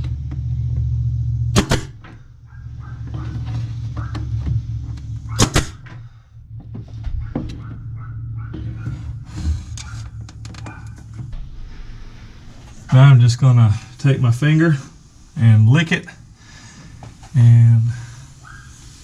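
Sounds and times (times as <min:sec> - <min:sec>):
nail gun firing: 0:01.6 - 0:02.2, 0:05.4 - 0:06.0.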